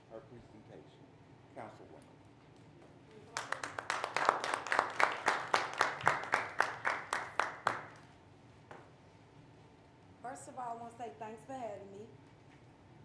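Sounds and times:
audience applauding: 0:03.1 - 0:08.0.

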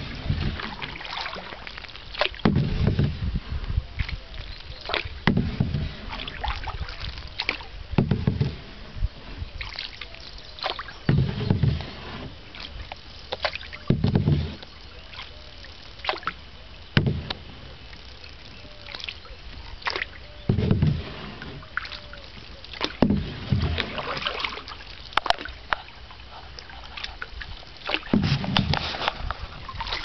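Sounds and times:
paddle knocking on hull: 0:00.0 - 0:03.3, 0:04.8 - 0:08.9, 0:10.6 - 0:14.6, 0:16.0 - 0:17.6, 0:19.8 - 0:22.2, 0:22.8 - 0:25.7, 0:27.8 - 0:30.0
paddle splashing in water: 0:00.0 - 0:30.0.

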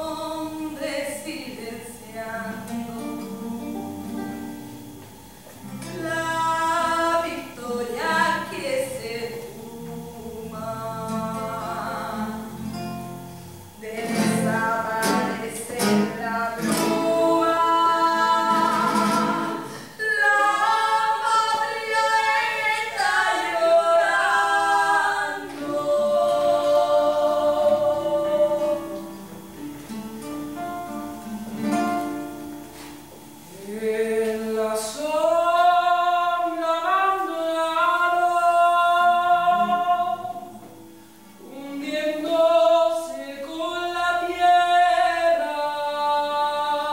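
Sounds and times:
plucked acoustic guitar: 0:02.4 - 0:46.9
several voices singing: 0:05.7 - 0:12.8, 0:13.7 - 0:29.5, 0:33.4 - 0:46.9.

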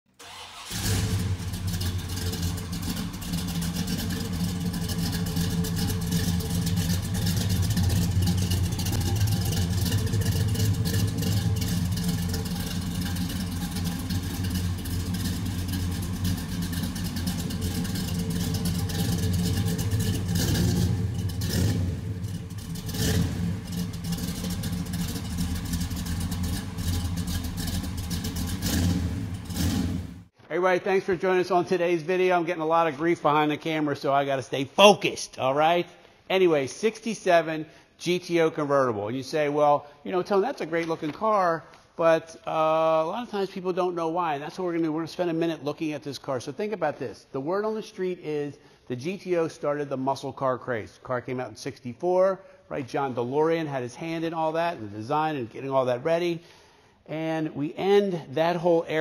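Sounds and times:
car engine and exhaust running: 0:00.5 - 0:30.3.

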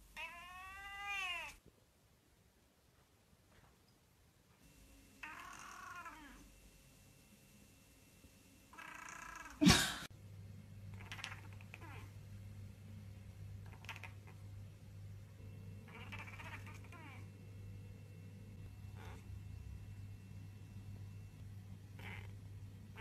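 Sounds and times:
cat meowing: 0:00.2 - 0:01.6, 0:05.2 - 0:06.4, 0:08.7 - 0:09.6, 0:11.0 - 0:12.1, 0:13.7 - 0:14.4, 0:15.9 - 0:17.3, 0:19.0 - 0:19.3, 0:22.0 - 0:23.0
faint cat calls: 0:00.2 - 0:01.6, 0:05.2 - 0:06.5, 0:08.7 - 0:09.7, 0:15.8 - 0:17.3, 0:18.8 - 0:19.3, 0:21.9 - 0:23.0
steady low hum: 0:04.0 - 0:23.0.

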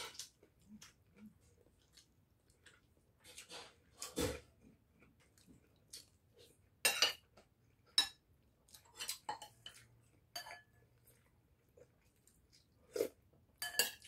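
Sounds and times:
metal spoon clinking on plates: 0:06.9 - 0:07.3, 0:09.0 - 0:10.8, 0:13.6 - 0:14.0.

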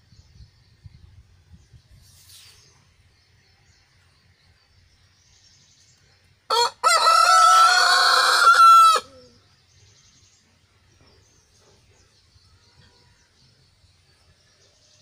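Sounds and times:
rooster crowing: 0:06.5 - 0:09.3.

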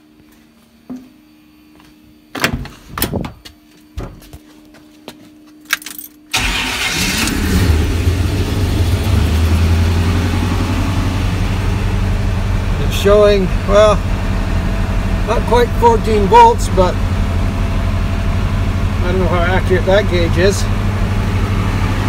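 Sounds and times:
engine starting and idling: 0:06.3 - 0:12.7.

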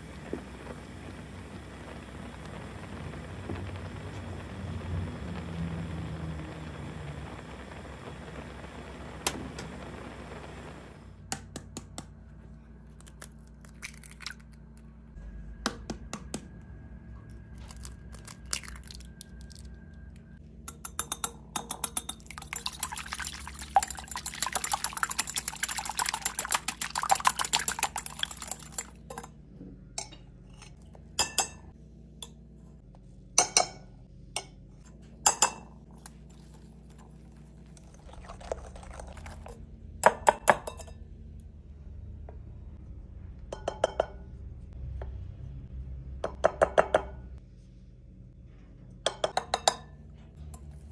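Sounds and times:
egg sloshing: 0:13.0 - 0:14.6, 0:17.6 - 0:19.6, 0:22.2 - 0:29.2, 0:36.0 - 0:39.6.

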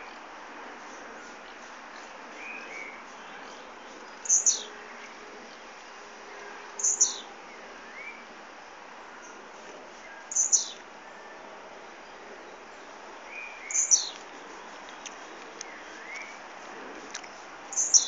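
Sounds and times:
background hiss: 0:00.0 - 0:18.0
faint chirps of other birds: 0:00.8 - 0:08.4, 0:09.0 - 0:16.5, 0:17.1 - 0:18.0
bird singing high song phrase: 0:01.5 - 0:05.6, 0:06.8 - 0:08.3, 0:10.1 - 0:11.3, 0:13.3 - 0:14.2, 0:17.7 - 0:18.0.

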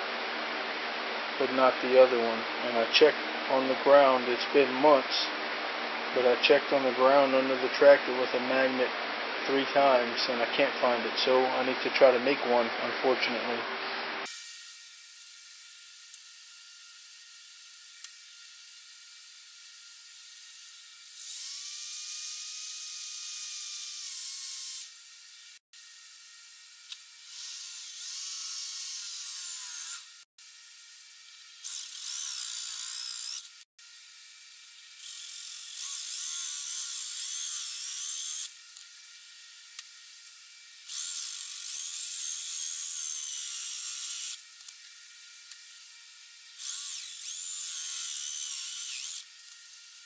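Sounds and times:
electric drill boring metal: 0:14.2 - 0:50.0.

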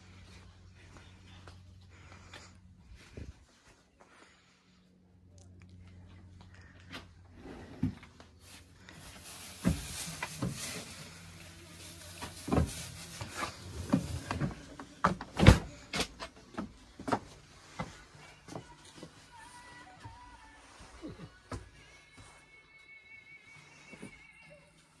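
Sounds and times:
footsteps: 0:07.8 - 0:22.5.

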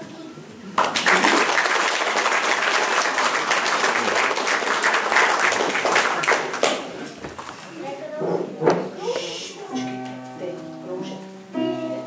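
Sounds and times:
crowd applauding: 0:00.8 - 0:06.9.

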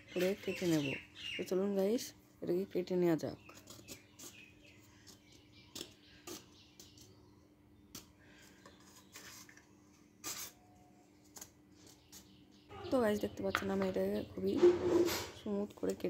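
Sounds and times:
knife scraping plastic pipe: 0:08.0 - 0:10.6.

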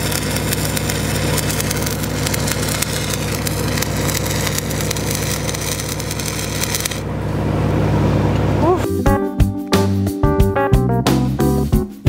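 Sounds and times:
welding arc crackling: 0:00.0 - 0:07.1
welding machine engine hum: 0:00.0 - 0:08.8.

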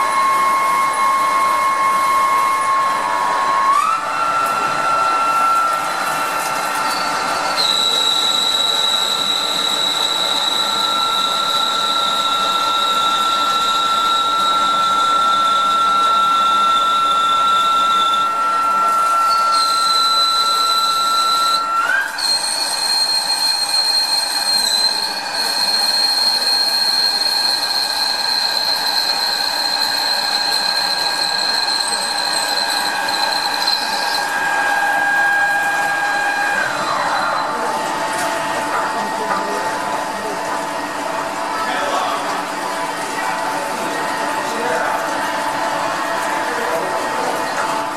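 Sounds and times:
high-pitched machine whine: 0:00.0 - 0:47.9.

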